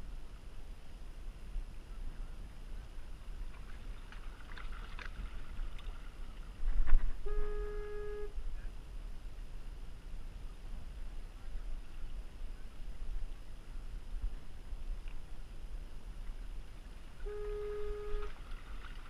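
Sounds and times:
wind rumble on microphone: 0.0s - 19.0s
steady pitched tone: 7.1s - 8.7s, 17.2s - 18.4s.

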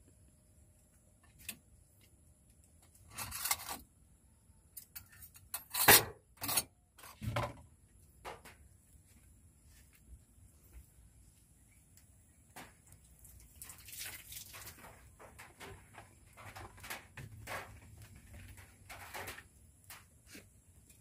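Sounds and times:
dishes and pot clattering: 4.8s - 7.6s.

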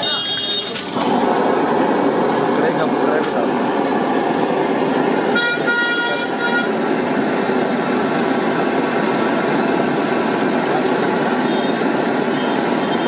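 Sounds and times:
vehicle horn beeps: 0.0s - 0.9s, 5.4s - 6.8s, 11.4s - 13.0s
street traffic din: 0.0s - 13.0s.

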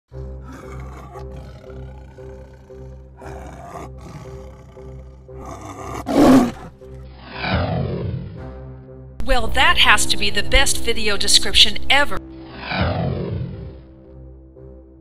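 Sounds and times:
background music: 0.1s - 15.0s
tiger growling and roaring: 0.2s - 8.4s, 12.5s - 13.8s.

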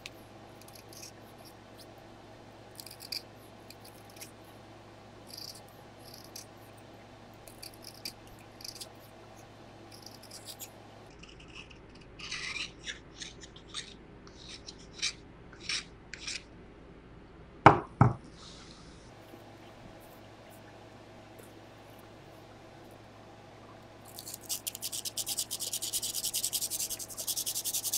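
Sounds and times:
knife scraping pencil wood: 0.6s - 1.9s, 2.8s - 4.4s, 5.3s - 6.5s, 7.4s - 9.1s, 9.9s - 16.5s, 24.2s - 27.9s
knife knocking on a desk: 17.7s - 18.2s.

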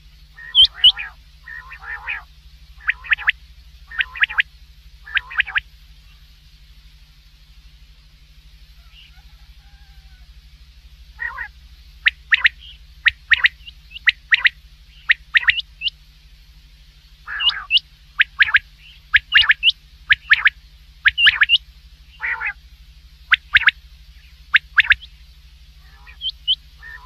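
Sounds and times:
rough low bird calls: 0.0s - 6.4s, 8.7s - 10.4s, 11.1s - 16.0s, 17.2s - 22.6s, 23.3s - 25.2s, 25.8s - 27.0s
steady low hum: 0.0s - 27.0s
quail whistled calls: 0.3s - 6.2s, 8.8s - 10.3s, 11.2s - 16.0s, 17.2s - 22.6s, 23.3s - 25.2s, 25.8s - 27.0s.

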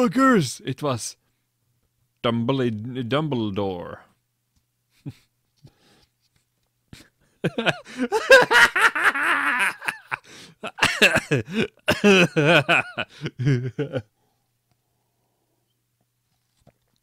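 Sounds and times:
man laughing and wheezing: 4.9s - 5.4s, 6.9s - 14.2s.

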